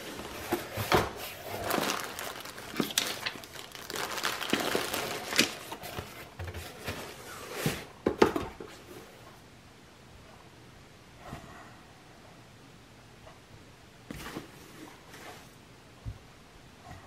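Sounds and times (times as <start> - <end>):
packing crinkling and rustling: 0.0 - 7.2
cardboard box set on table: 0.0 - 8.9.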